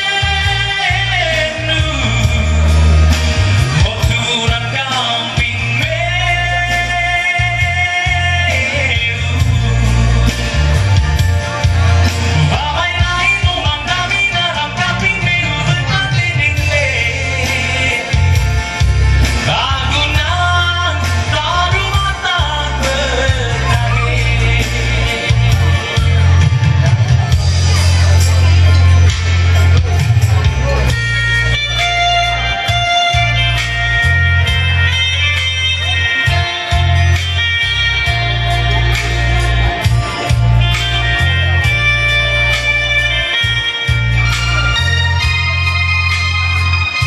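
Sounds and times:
backing music with heavy bass: 0.0s - 47.0s
man singing into microphone: 0.0s - 47.0s.

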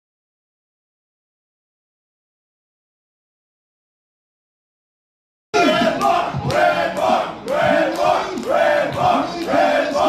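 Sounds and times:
crowd chanting and shouting: 5.6s - 10.0s.

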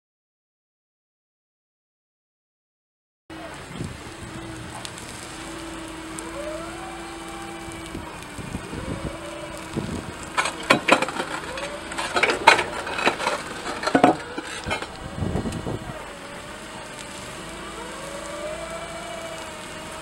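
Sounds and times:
forklift engine humming: 3.3s - 20.0s
tyres crunching on stone slabs: 4.4s - 20.0s.

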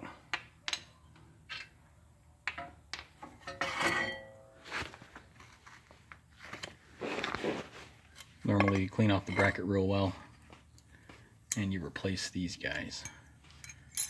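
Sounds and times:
metal parts clinking on concrete: 12.9s - 14.0s.

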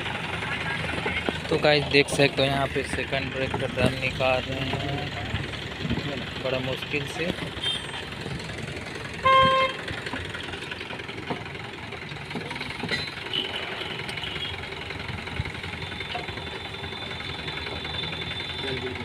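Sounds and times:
steady background noise: 0.0s - 19.0s
vehicle horn toot: 7.6s - 8.0s, 9.2s - 9.8s, 13.3s - 14.6s.

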